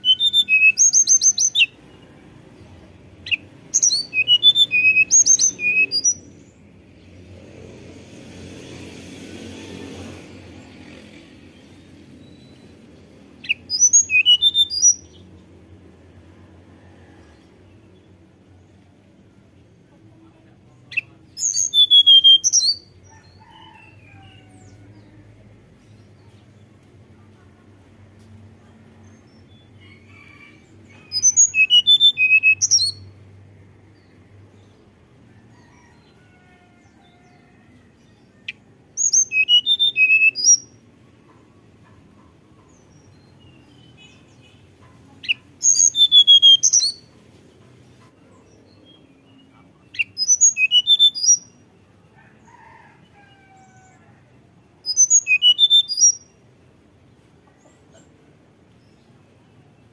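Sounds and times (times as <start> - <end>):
bird singing high-pitched whistles: 0.0 - 1.8, 3.3 - 6.2, 13.4 - 15.2, 21.0 - 22.9, 31.1 - 33.1, 39.0 - 40.7, 45.2 - 47.1, 50.0 - 51.5, 54.8 - 56.2.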